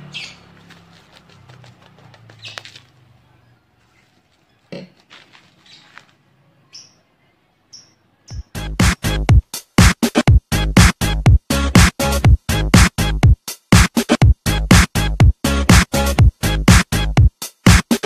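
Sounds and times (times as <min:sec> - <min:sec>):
bubble wrap crinkling: 0:00.5 - 0:03.0.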